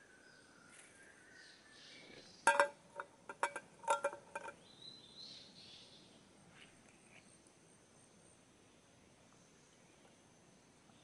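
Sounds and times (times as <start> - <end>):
dishes clinking: 2.5 - 4.6.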